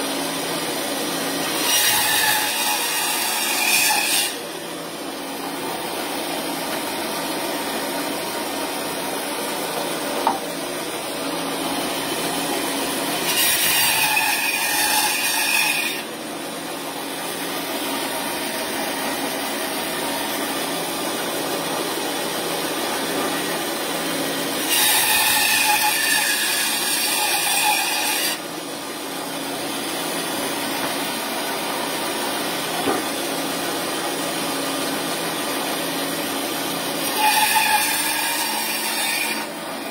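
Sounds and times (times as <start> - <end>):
bandsaw running: 0.0 - 39.9
bandsaw cutting through bone: 1.2 - 4.4, 11.6 - 16.1, 24.5 - 28.4, 36.8 - 39.9.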